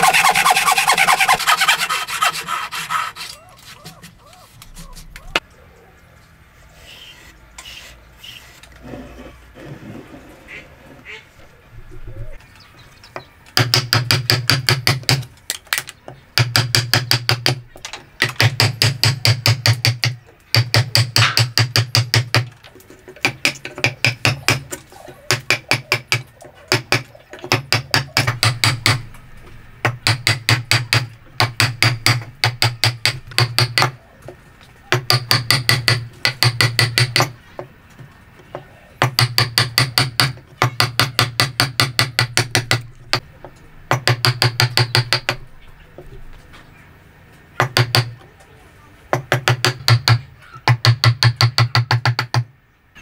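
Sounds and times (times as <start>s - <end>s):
hammer striking a chisel: 13.6s - 15.3s, 16.4s - 17.6s, 18.2s - 22.5s, 25.3s - 29.0s, 29.8s - 34.0s, 34.9s - 37.4s, 39.0s - 43.2s, 43.9s - 45.4s, 47.6s - 48.2s, 49.1s - 52.5s.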